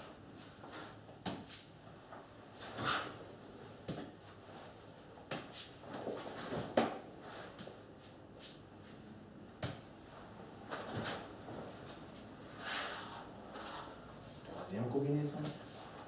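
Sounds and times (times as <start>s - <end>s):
nunchaku swishing through air: 0.6s - 1.7s, 2.6s - 3.2s, 5.3s - 8.6s, 10.7s - 11.3s.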